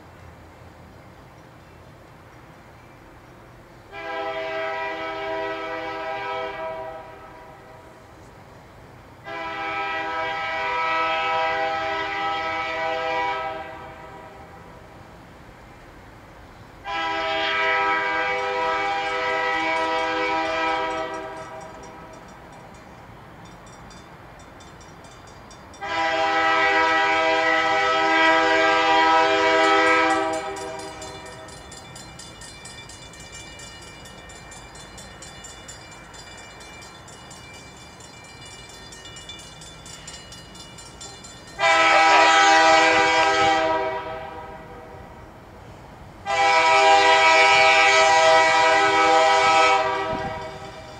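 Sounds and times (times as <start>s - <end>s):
locomotive horn blasts: 3.9s - 7.8s, 9.2s - 14.5s, 16.8s - 22.1s, 25.7s - 31.2s, 41.6s - 45.1s, 46.2s - 50.8s
crossing bell ringing: 18.8s - 27.1s, 29.2s - 42.9s, 49.7s - 50.9s.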